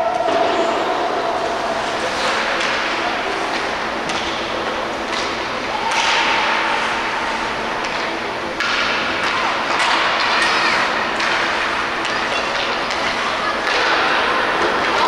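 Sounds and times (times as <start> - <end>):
skates scraping ice: 1.4 - 4.5
hockey sticks and puck clacking: 1.8 - 15.0.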